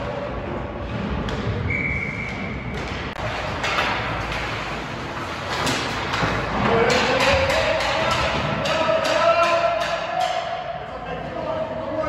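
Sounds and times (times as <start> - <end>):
skates scraping ice: 0.1 - 8.8
hockey sticks and pucks knocking: 2.3 - 10.7.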